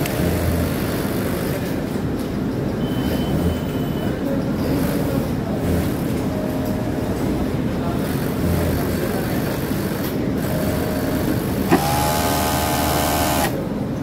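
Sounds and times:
factory machine din: 0.0 - 14.0
sewing machine whine: 9.2 - 13.6.

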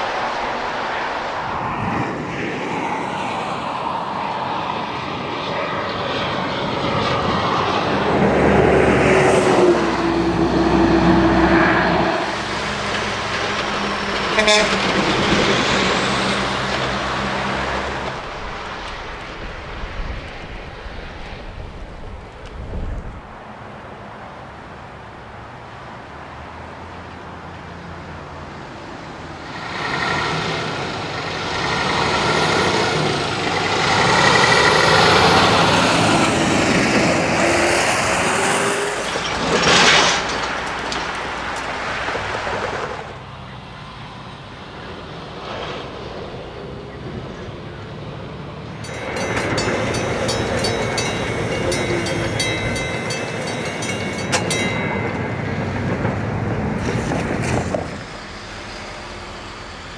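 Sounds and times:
truck passing close by: 0.0 - 59.9
train wheels clattering on rails: 12.2 - 18.8, 48.8 - 58.8.

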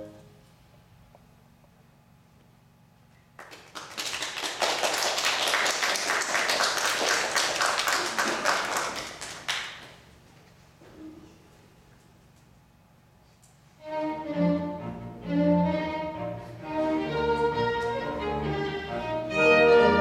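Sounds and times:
audience applauding: 3.4 - 10.1.

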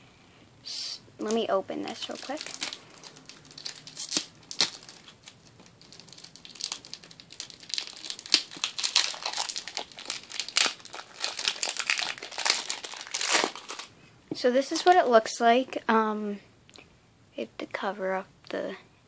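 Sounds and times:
plastic wrapper crinkling: 1.2 - 13.9.

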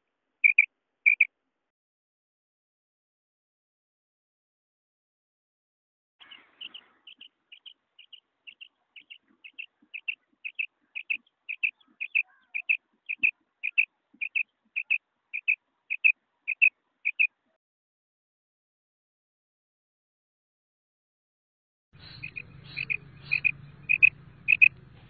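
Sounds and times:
quail calling: 0.4 - 1.3, 6.2 - 17.3, 22.0 - 24.8.

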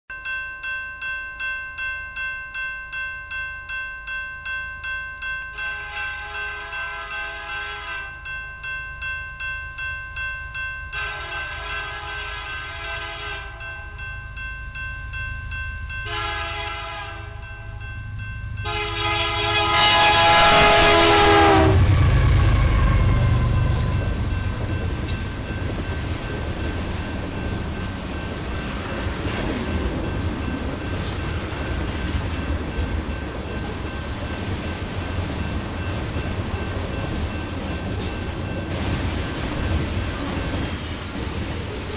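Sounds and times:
crossing warning bell ringing: 0.1 - 41.9
train wheels rumbling on rails: 11.0 - 41.9
train click: 23.4 - 41.9.

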